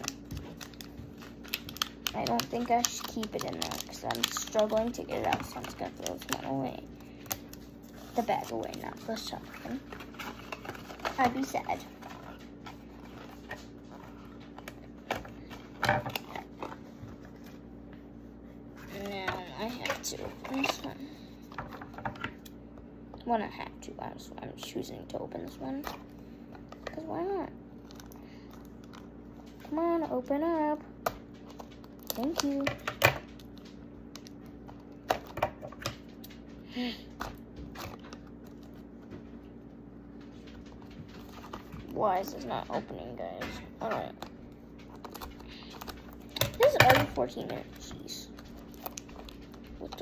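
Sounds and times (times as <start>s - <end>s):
plastic packaging clicks and rustles: 0.0s - 17.6s, 27.8s - 36.5s, 40.1s - 43.0s, 43.8s - 50.0s.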